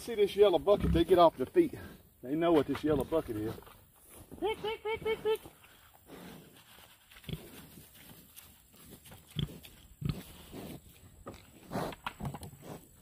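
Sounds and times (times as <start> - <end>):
pigs grunting: 0.5 - 2.0, 9.3 - 10.8.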